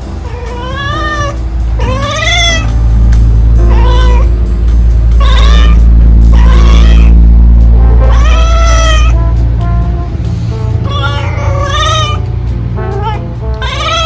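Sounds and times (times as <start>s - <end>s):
background music with low notes: 0.0s - 14.0s
cat meowing: 0.3s - 2.7s, 3.7s - 4.3s, 5.2s - 7.2s, 8.0s - 9.2s, 10.8s - 12.2s, 12.9s - 14.0s.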